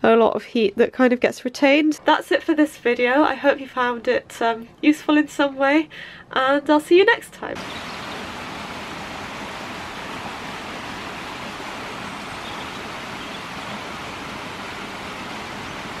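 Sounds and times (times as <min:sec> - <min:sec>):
stream of water rushing: 0:07.6 - 0:16.0.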